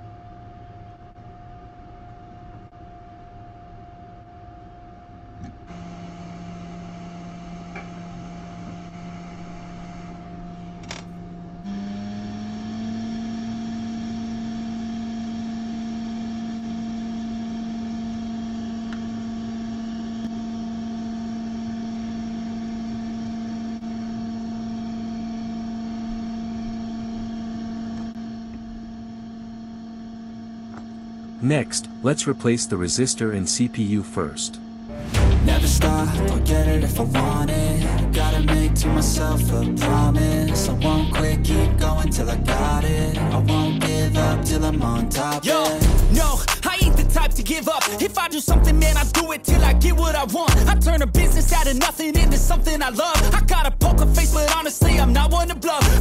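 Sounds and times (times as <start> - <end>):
small motor humming: 4.6 - 35.0.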